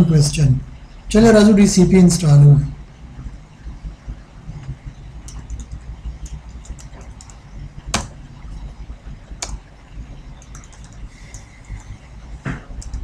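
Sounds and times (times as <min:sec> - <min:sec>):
steady low hum: 0:00.0 - 0:13.0
keyboard key clicks: 0:05.3 - 0:08.2.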